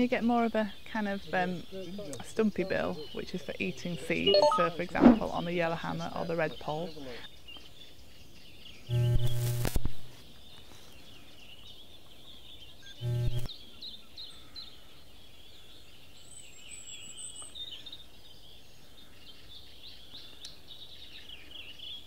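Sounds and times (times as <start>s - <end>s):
songbirds twittering: 0.0s - 22.0s
steady outdoor hiss: 0.0s - 22.0s
loud thump: 5.0s - 5.4s.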